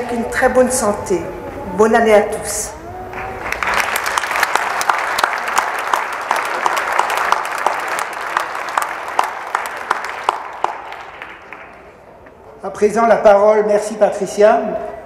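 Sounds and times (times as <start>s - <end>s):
audience applauding: 3.1s - 12.1s.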